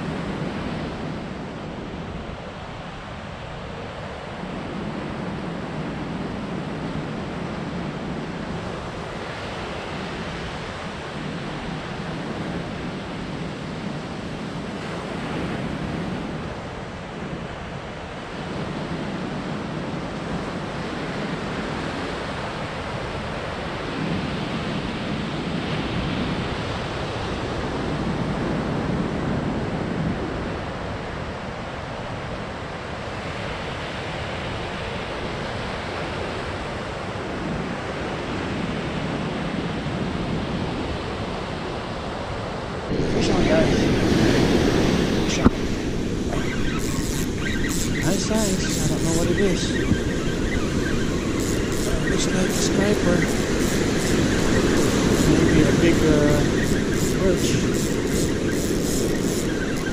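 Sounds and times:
ocean surf breaking: 0:41.8 - 0:59.9.

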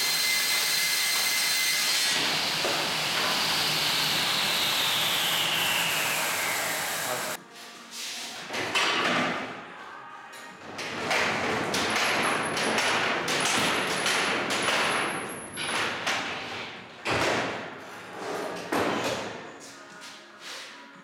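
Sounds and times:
panel saw cutting board: 0:00.0 - 0:07.4.

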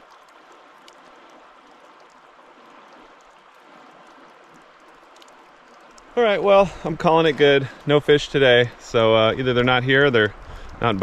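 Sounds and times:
river water flowing: 0:00.0 - 0:11.0.

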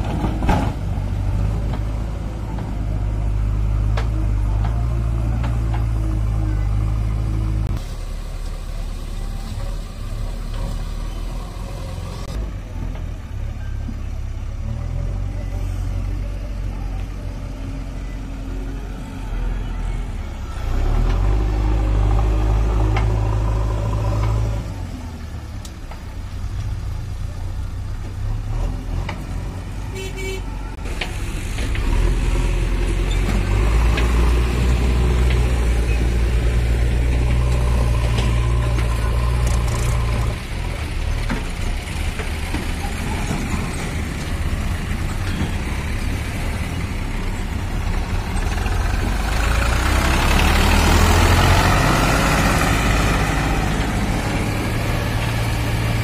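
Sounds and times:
diesel engines revving: 0:00.0 - 0:56.0
horn toot: 0:29.9 - 0:30.6.

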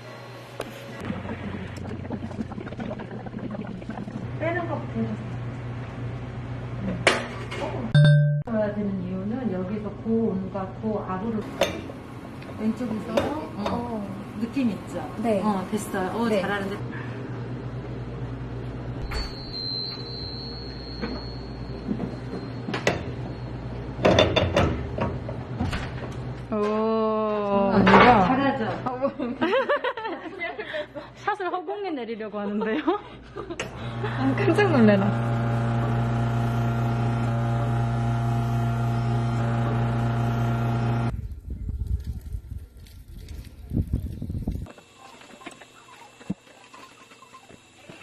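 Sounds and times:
thin high whine: 0:19.0 - 0:24.0
low machine hum: 0:32.8 - 0:41.2.

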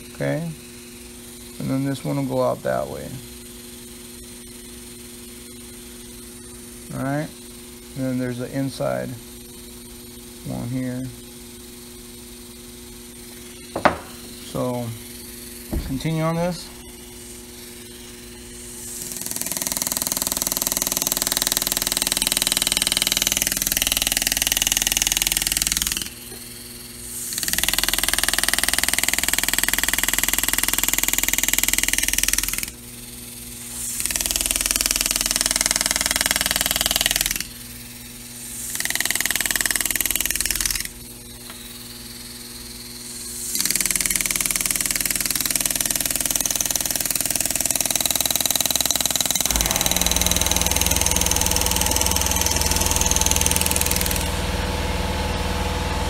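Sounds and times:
pneumatic engraver buzzing: 0:09.4 - 0:56.0
deeper hum: 0:13.2 - 0:19.3, 0:49.4 - 0:56.0.

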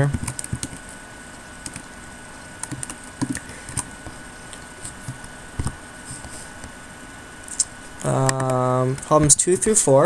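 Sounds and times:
faint electrical whine: 0:00.0 - 0:10.0
keyboard and mouse clicks: 0:00.1 - 0:00.8, 0:02.6 - 0:03.9, 0:07.5 - 0:08.6.

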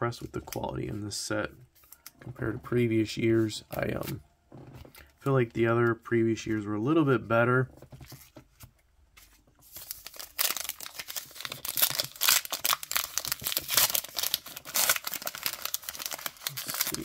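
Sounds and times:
wrapper tearing and crinkling: 0:09.6 - 0:17.0.

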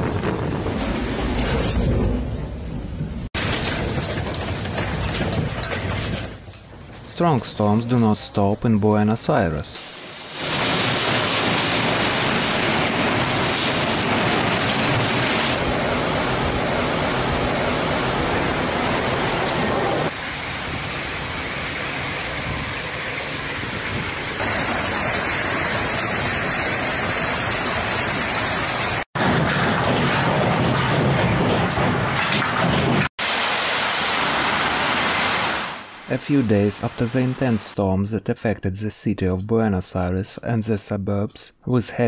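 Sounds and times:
storm wind: 0:00.0 - 0:07.4, 0:09.9 - 0:37.6
heavy rain: 0:09.8 - 0:37.7.

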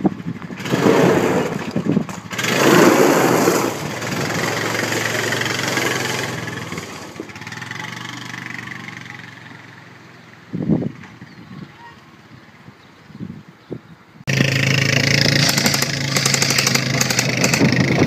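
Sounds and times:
tyres on gravel: 0:00.0 - 0:09.5, 0:15.0 - 0:18.0
quad bike engine under load: 0:00.0 - 0:09.9, 0:14.3 - 0:18.0.

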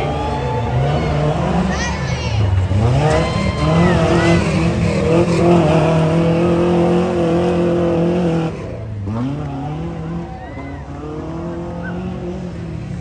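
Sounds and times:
truck engine at high revs: 0:00.0 - 0:13.0.

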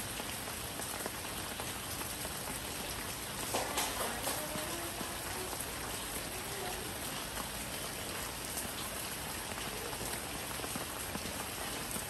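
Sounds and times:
steady rain falling: 0:00.0 - 0:12.0
single raindrops ticking: 0:03.2 - 0:07.5.

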